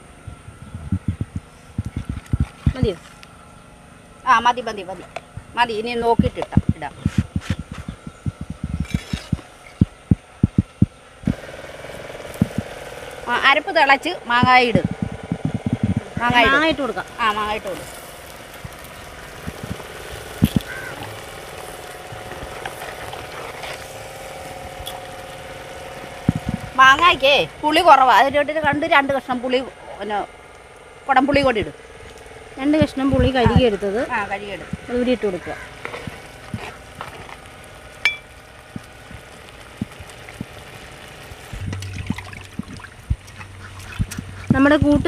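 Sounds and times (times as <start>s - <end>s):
steady motor hum: 0.0s - 45.0s
metal ladle clinking on clay pot: 38.1s - 38.3s.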